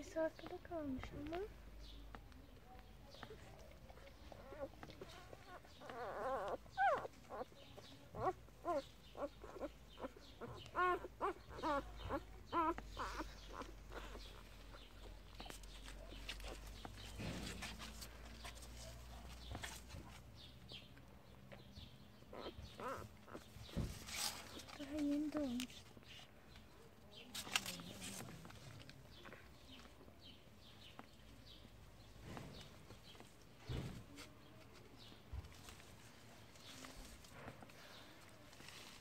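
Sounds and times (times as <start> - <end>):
puppies squeaking and whimpering: 4.2 - 17.6, 22.2 - 24.7.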